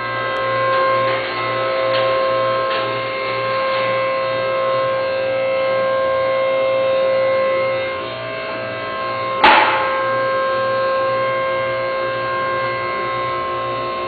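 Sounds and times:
hydraulic pump whine: 0.0s - 14.0s
low pulsing hum: 0.0s - 14.0s
sharp metallic bang: 9.4s - 10.1s.

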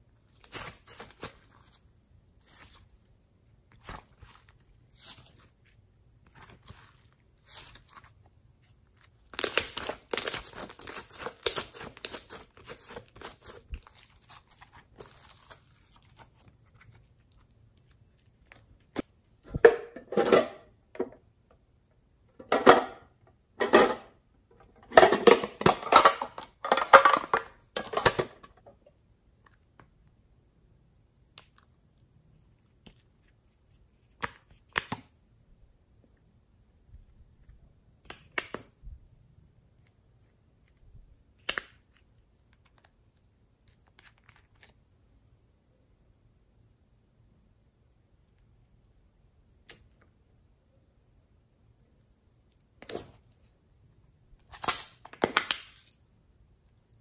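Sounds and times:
slime crackling and popping: 8.9s - 17.4s.

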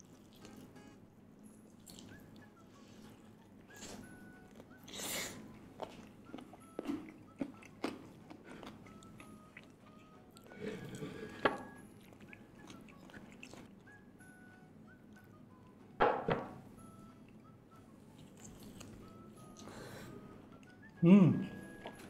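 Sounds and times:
chewing crispy fried chicken: 0.0s - 0.8s, 1.7s - 14.0s, 17.3s - 20.0s.

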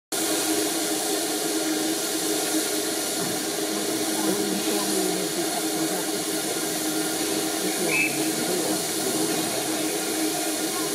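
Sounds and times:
steam hissing from locomotive: 0.1s - 10.9s.

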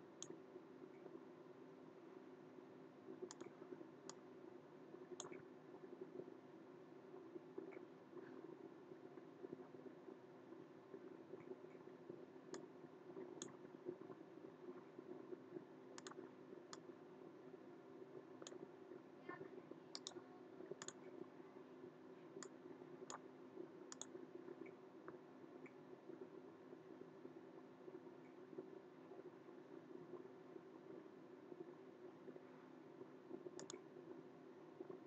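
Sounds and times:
low steady hum: 0.0s - 35.0s
computer mouse clicks: 3.2s - 4.2s, 5.1s - 5.4s, 16.0s - 16.8s, 18.4s - 18.6s, 19.9s - 20.2s, 20.8s - 21.1s, 23.9s - 24.8s, 33.6s - 33.9s.

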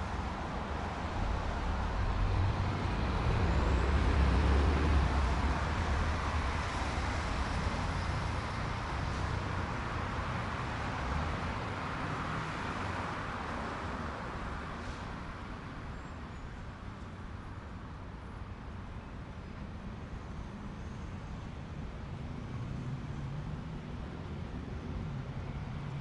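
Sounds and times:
vehicle engine rumble passing: 0.0s - 9.7s
road noise: 0.0s - 26.0s.

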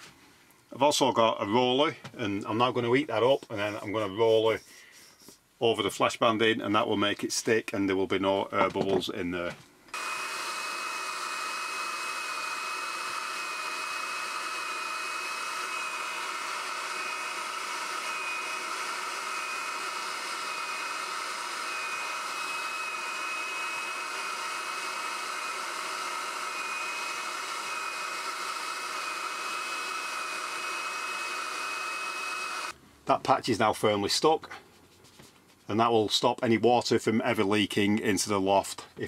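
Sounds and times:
heat gun running: 9.9s - 32.8s.

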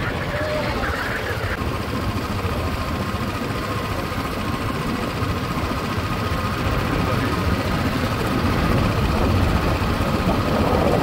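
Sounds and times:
small vehicle engine running: 0.0s - 11.0s
wind rumble on microphone: 6.8s - 11.0s.

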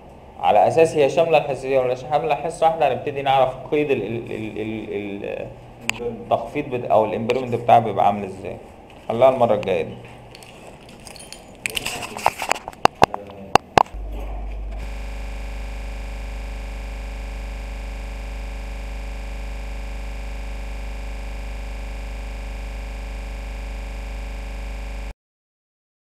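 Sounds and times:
deep low hum: 13.9s - 25.1s
synthesizer drone: 13.9s - 25.1s.

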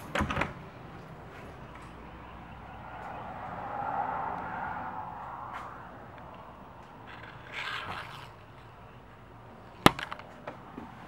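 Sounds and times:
wooden door sliding open rattling: 0.0s - 0.7s
soft rushing noise: 0.8s - 8.6s.

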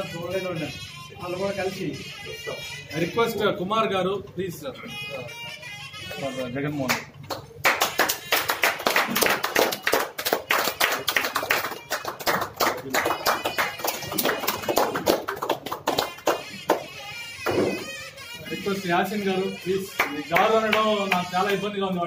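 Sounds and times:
people clapping in rhythm: 6.9s - 17.8s, 19.9s - 21.6s.

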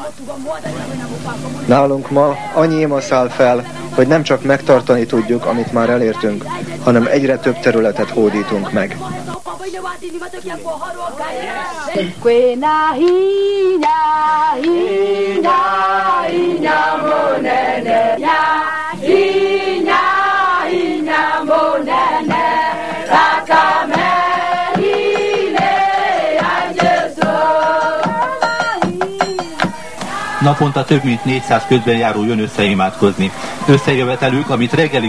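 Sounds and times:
women singing gospel: 0.6s - 35.0s
sharp percussive hits: 22.2s - 30.2s.

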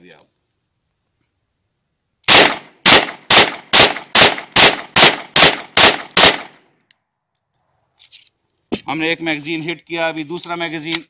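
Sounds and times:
pistol shots: 2.3s - 6.6s.

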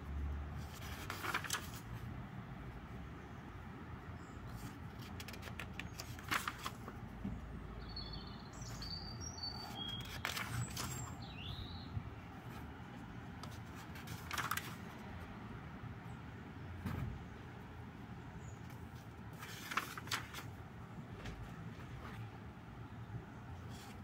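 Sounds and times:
notebook pages turning: 0.6s - 1.9s, 4.5s - 7.1s, 9.7s - 11.2s, 13.4s - 15.0s, 18.6s - 20.6s.

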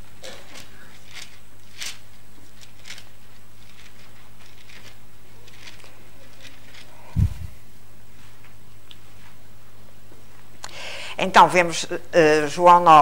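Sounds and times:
low electrical hum: 0.0s - 13.0s
paper pages turning: 0.2s - 7.4s.

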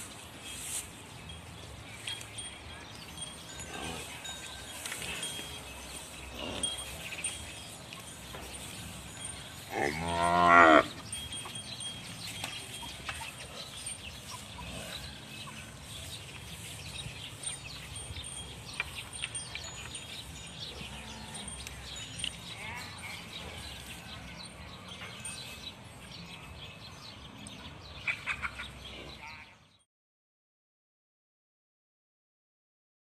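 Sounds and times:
cow mooing: 9.7s - 11.0s.

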